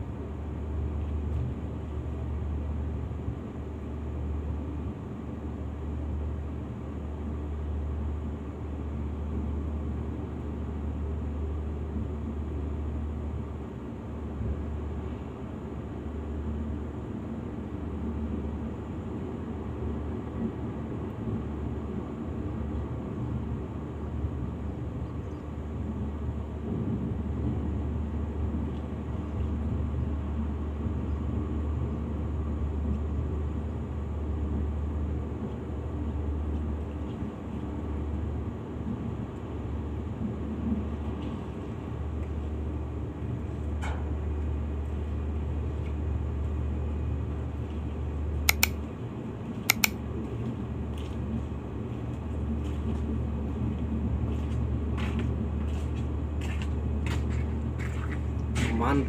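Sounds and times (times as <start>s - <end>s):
sharp clicks: 48.5s - 48.8s, 49.7s - 50.0s.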